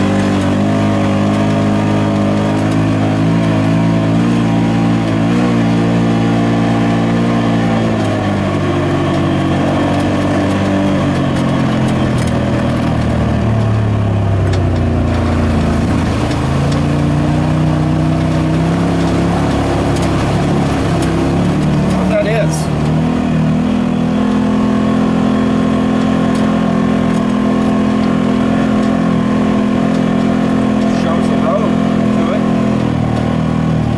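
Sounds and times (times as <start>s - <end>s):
utility vehicle engine running: 0.0s - 33.9s.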